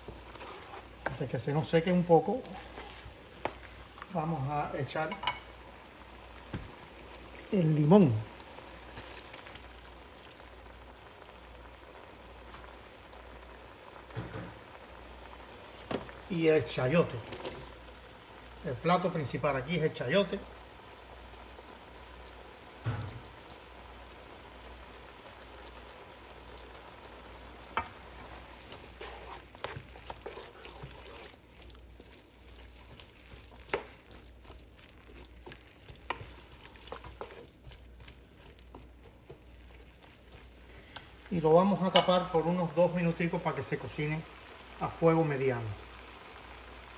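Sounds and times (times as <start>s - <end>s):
food simmering in a pan: 0.0s - 46.9s
wooden spoon knocking a pan: 5.0s - 5.5s.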